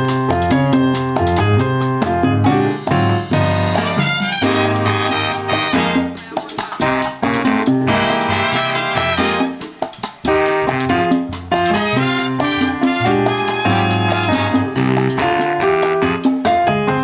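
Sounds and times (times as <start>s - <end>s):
latin percussion: 0.0s - 17.0s
piano: 0.0s - 17.0s
horn section playing: 3.2s - 16.6s.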